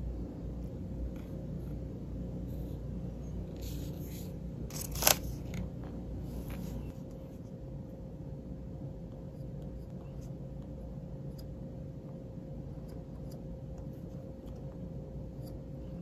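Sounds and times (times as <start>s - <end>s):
steady low hum: 0.0s - 16.0s
fingers handling a phone: 3.7s - 7.2s.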